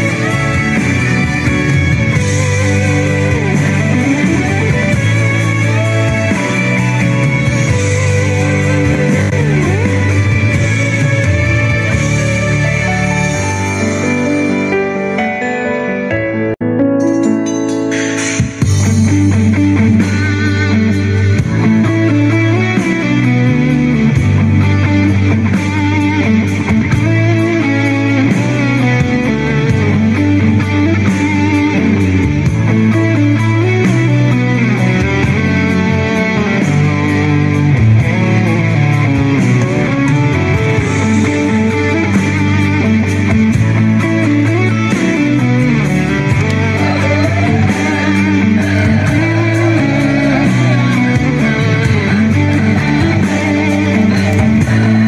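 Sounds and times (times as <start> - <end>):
bass line: 0.0 - 14.8, 18.4 - 55.0
electric guitar: 0.0 - 17.1, 17.7 - 55.0.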